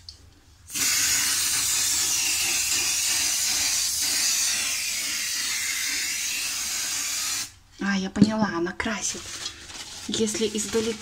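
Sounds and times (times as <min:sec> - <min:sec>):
spray paint can hissing: 0:00.7 - 0:07.6.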